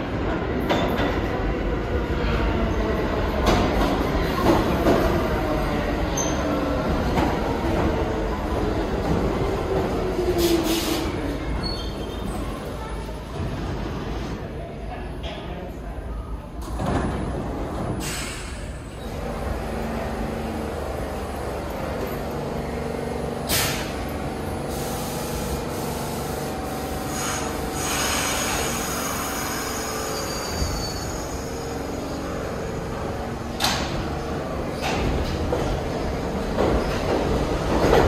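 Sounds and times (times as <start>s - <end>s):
subway train motors humming: 0.0s - 38.0s
air hiss: 23.5s - 24.0s, 24.7s - 30.6s.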